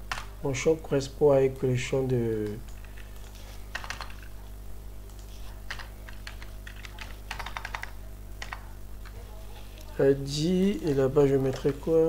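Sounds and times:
steady low hum: 0.0 - 12.0
typing on computer keyboard: 2.4 - 4.3, 5.1 - 9.2.

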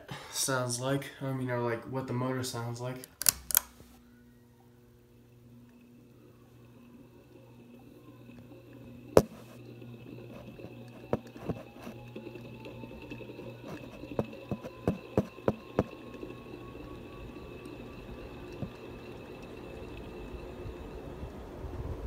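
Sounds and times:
ceiling fan motor humming: 0.0 - 22.0.

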